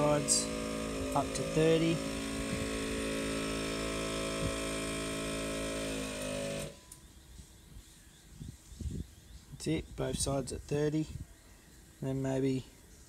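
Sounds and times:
air compressor running: 0:00.0 - 0:06.9.

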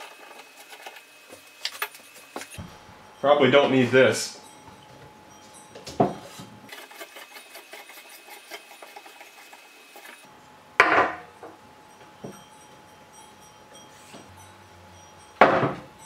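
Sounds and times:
metal parts rattling and clicking: 0:00.0 - 0:02.6.

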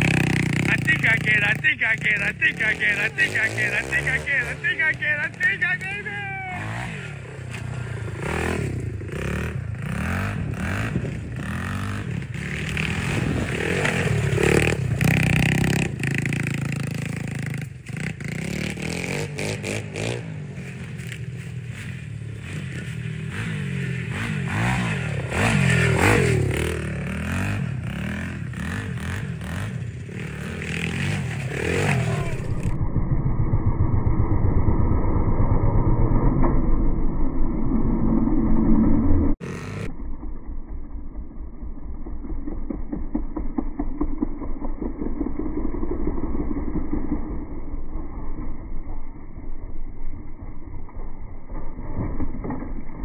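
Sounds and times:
dirt bike engine revving: 0:00.0 - 0:32.8, 0:33.9 - 0:40.1.

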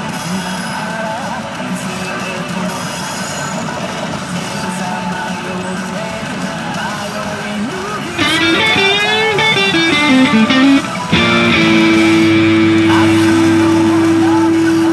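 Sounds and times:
pachinko machine guitar music: 0:08.2 - 0:14.9
wavering guitar lead line: 0:08.2 - 0:14.9.

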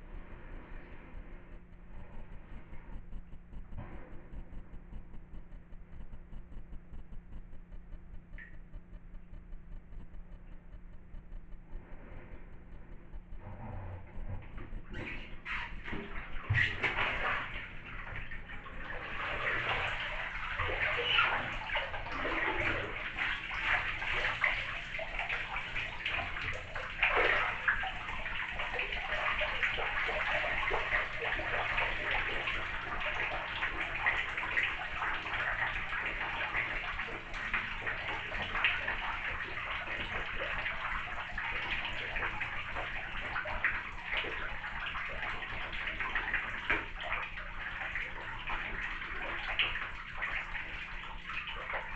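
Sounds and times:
water running into bathtub: 0:14.0 - 0:51.9
splashing in bathtub: 0:14.4 - 0:51.9.

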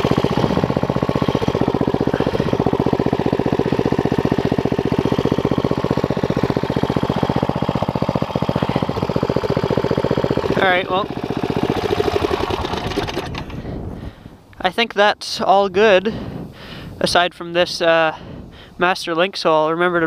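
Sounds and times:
small engine idling: 0:00.0 - 0:14.1.

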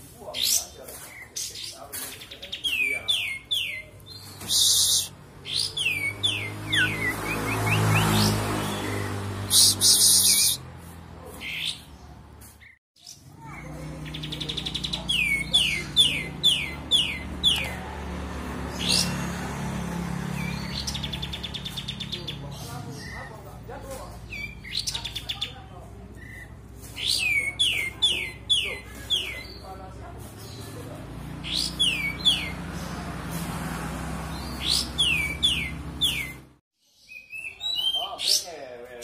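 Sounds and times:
bird calling: 0:00.3 - 0:10.6, 0:34.3 - 0:38.6
bulbul singing whistled notes: 0:02.7 - 0:10.6.

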